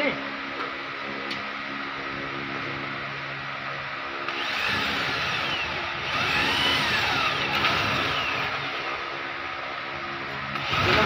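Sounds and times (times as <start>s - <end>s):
electric drill boring into metal: 4.3s - 9.0s, 10.5s - 11.0s.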